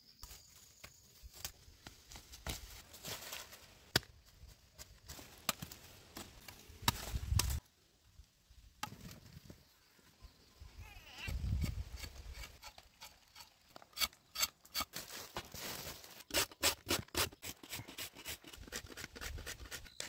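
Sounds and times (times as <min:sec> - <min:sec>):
scraping in soil: 0:11.5 - 0:20.0
dry leaves rustling: 0:14.9 - 0:16.2.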